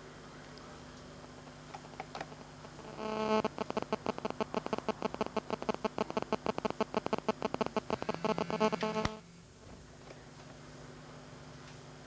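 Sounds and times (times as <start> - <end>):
telephone ringing electronic trill: 2.7 - 9.2.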